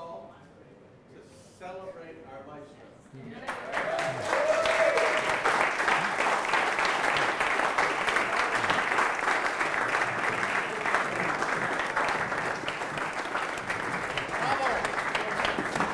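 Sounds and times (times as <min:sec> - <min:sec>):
audience applauding: 0:03.4 - 0:15.9.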